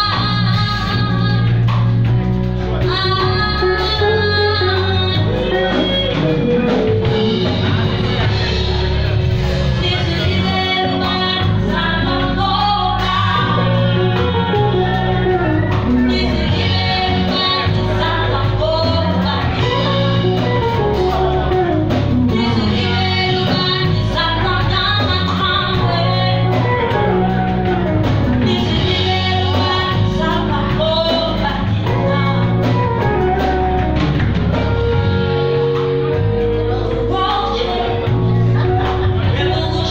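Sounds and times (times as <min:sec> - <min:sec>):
live band playing: 0:00.0 - 0:39.9
person singing: 0:02.7 - 0:39.9.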